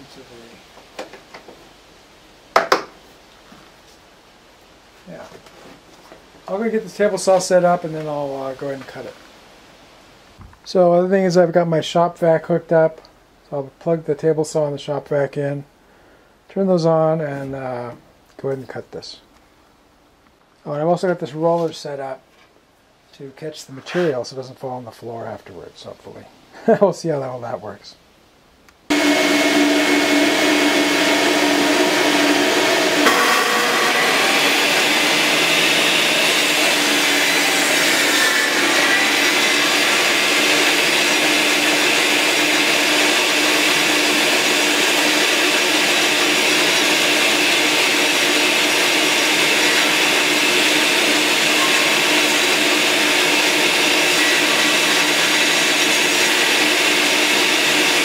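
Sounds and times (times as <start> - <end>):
saw cutting plywood: 28.9 - 58.0
shop vacuum running: 28.9 - 58.0
table saw running: 28.9 - 58.0.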